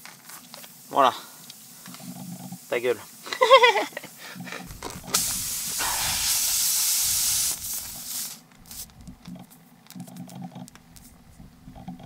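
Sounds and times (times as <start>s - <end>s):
air hissing out of tyre: 4.0s - 9.1s
tool scraping on tyre: 4.6s - 9.2s.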